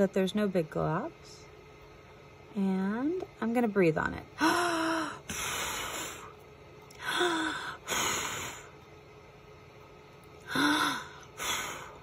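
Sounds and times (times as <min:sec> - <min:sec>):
woman exhaling and blowing: 0:04.4 - 0:06.4, 0:07.0 - 0:08.8, 0:10.4 - 0:12.0.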